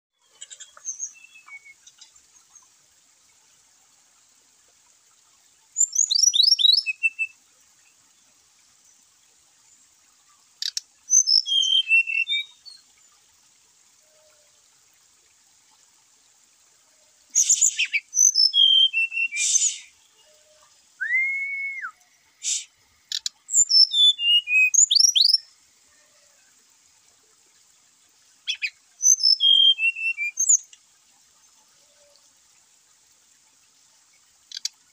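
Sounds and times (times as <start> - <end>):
birds singing whistled notes: 0.5 - 1.8, 5.8 - 7.4, 10.7 - 12.8, 17.4 - 20.4, 21.0 - 25.4, 28.5 - 30.7.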